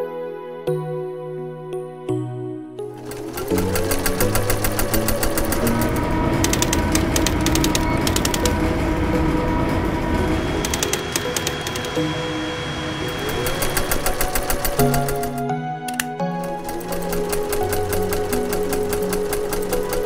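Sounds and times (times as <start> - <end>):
industrial sewing machine running: 3.0 - 15.4, 16.4 - 20.0.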